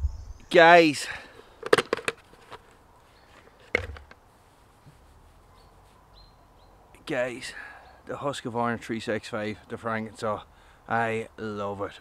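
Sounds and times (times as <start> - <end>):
helmet handling sounds: 1.6 - 6.0.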